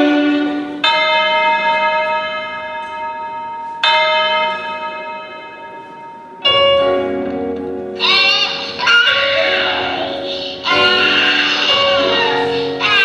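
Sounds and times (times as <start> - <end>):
bell ringing: 0.0 - 13.0.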